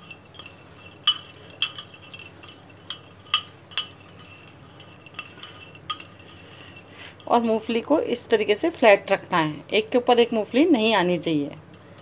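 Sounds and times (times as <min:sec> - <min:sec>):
metal spoon clinking on glass: 0:00.0 - 0:07.5.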